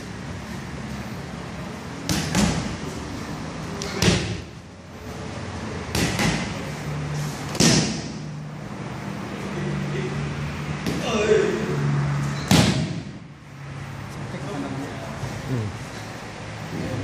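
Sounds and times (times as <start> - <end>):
strikes smacking into pads: 2.0 - 2.8, 3.8 - 4.5, 5.9 - 6.6, 7.5 - 8.2, 12.5 - 13.2.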